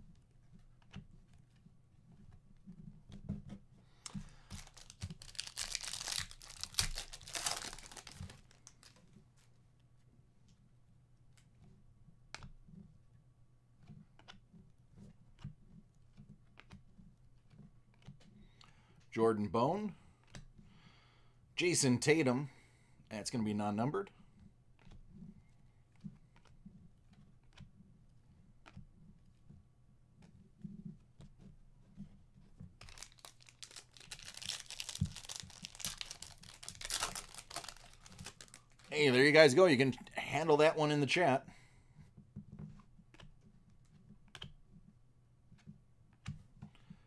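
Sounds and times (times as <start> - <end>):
foil wrapper tearing and crinkling: 4.1 - 9.0, 32.8 - 38.9.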